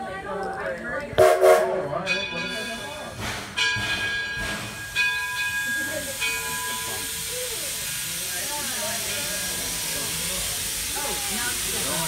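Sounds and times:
locomotive bell ringing: 1.2s - 10.9s
steam hissing: 2.4s - 12.0s.

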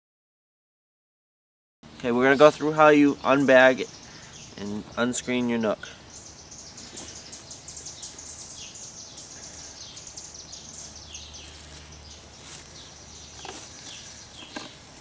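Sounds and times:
birds chirping: 1.8s - 15.0s.

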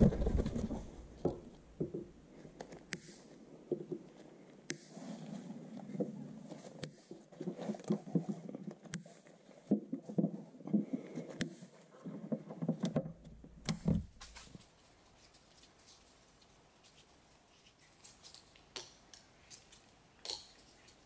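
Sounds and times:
rustle of gloved hands: 14.1s - 20.0s.

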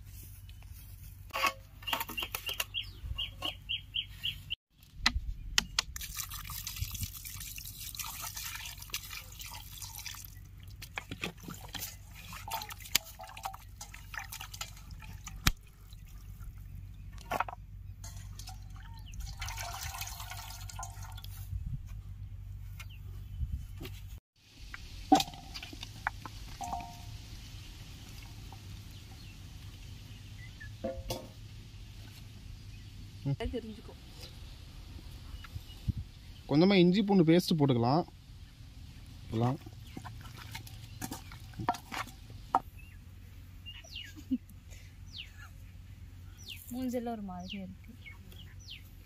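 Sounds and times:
water running and splashing: 6.0s - 16.6s, 18.1s - 21.4s, 39.4s - 42.3s.

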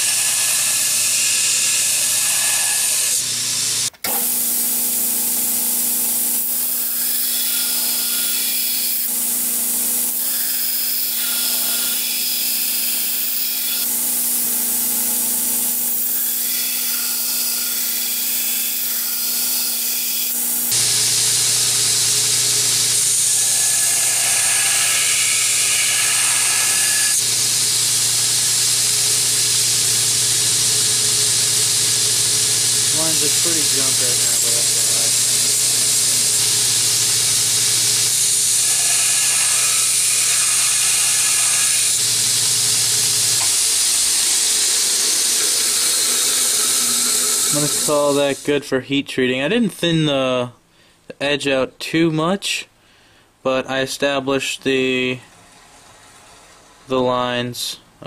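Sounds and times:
belt grinder motor hum: 0.0s - 48.4s
steel grinding hiss: 15.8s - 48.6s.

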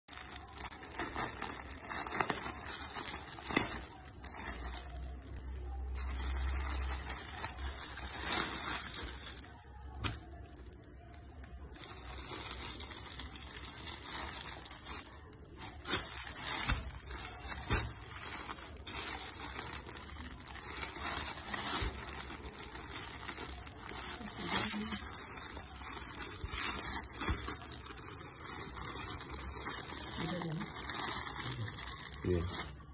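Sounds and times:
plastic packaging crinkling: 0.0s - 32.9s.

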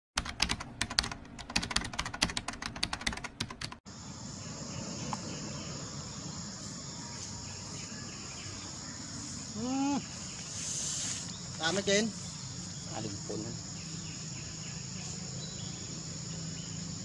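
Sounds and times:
rapid keyboard typing: 0.2s - 3.8s
insects droning: 3.9s - 17.0s.

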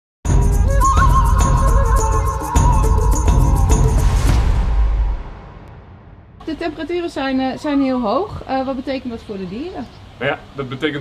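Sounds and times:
intro music with deep bass: 0.3s - 6.4s.

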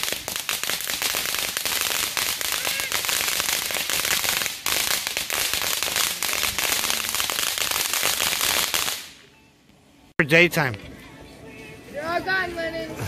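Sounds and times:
rushing hiss of sparks: 0.0s - 9.0s
firework fountain crackling: 0.0s - 9.3s.

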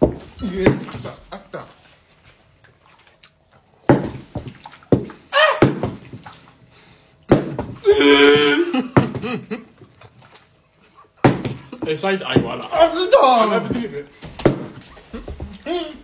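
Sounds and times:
sharp knocks: 3.9s - 6.2s, 7.3s - 7.8s, 11.2s - 12.7s
men shouting excitedly: 11.9s - 14.1s.

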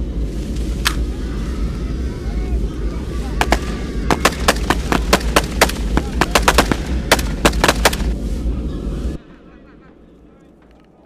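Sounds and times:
steady low rumble: 0.0s - 11.0s
rapid rifle shots: 3.4s - 8.2s.

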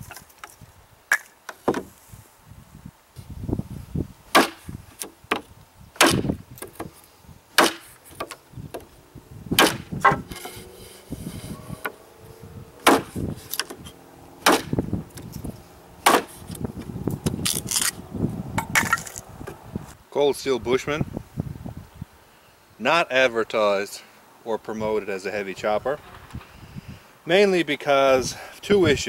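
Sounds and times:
blade chopping wood: 4.3s - 6.9s, 7.6s - 8.9s, 9.6s - 10.5s, 12.8s - 13.8s, 14.4s - 14.8s, 16.0s - 16.6s.

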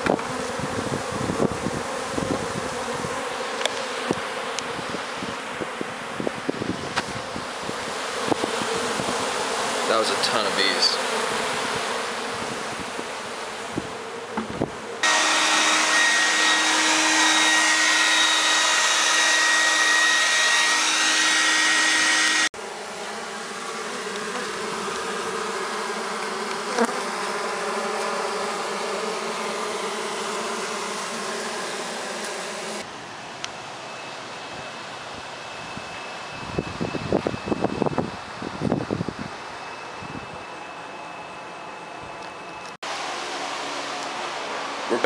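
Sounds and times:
bees buzzing: 0.0s - 35.3s
steady whine: 12.0s - 23.4s, 29.3s - 45.0s.

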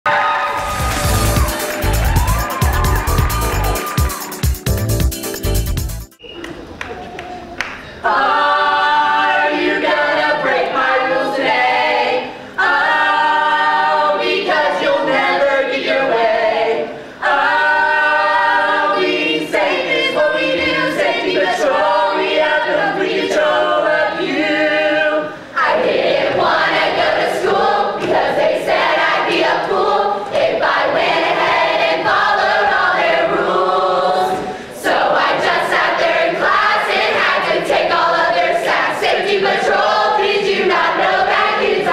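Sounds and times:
group singing a cappella: 8.0s - 41.9s.

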